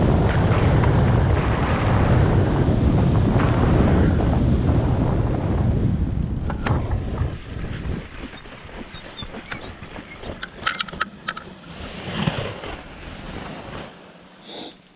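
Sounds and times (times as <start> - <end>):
wind rushing over microphone: 0.0 - 10.8.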